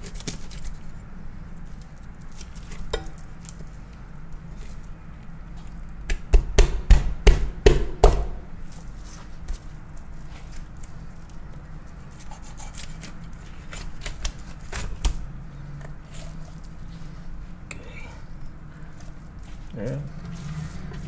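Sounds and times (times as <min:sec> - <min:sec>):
knife scraping fish scales: 0:12.1 - 0:14.9.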